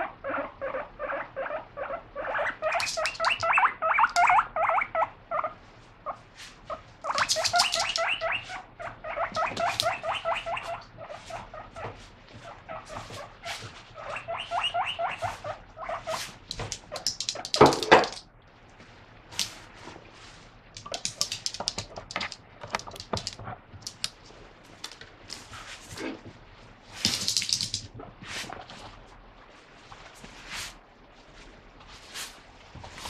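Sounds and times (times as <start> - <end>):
guinea pig wheeking: 0.0 - 18.2, 20.8 - 24.2.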